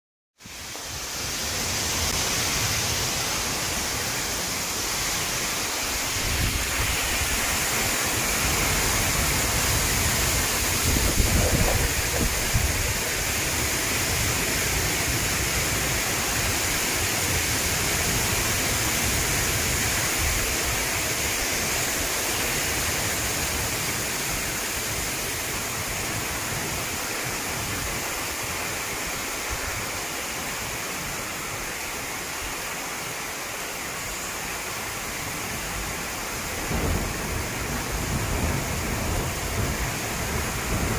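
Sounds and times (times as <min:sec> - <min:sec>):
heavy rain on trees: 0:00.4 - 0:40.9
wind in foliage: 0:00.4 - 0:40.9
low thunder rumble: 0:06.1 - 0:16.1, 0:36.5 - 0:40.9.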